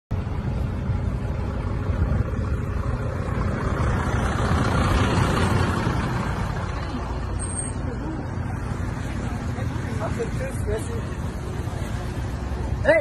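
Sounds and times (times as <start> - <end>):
car engine and road rumble: 0.1 - 13.0.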